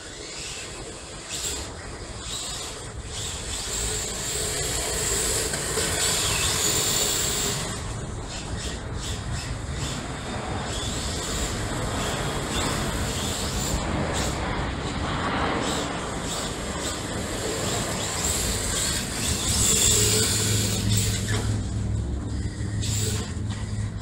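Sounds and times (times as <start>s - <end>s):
electric motors whining: 0.0s - 24.0s.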